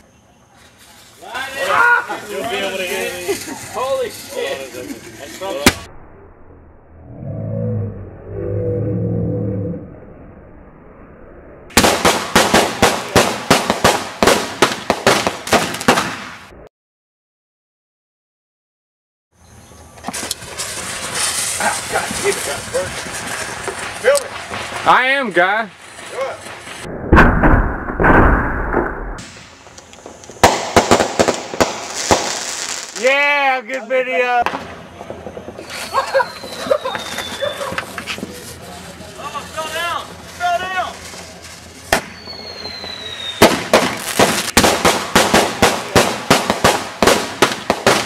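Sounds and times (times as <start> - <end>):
fireworks banging: 1.2 - 6.7, 11.7 - 16.5, 20.0 - 48.0.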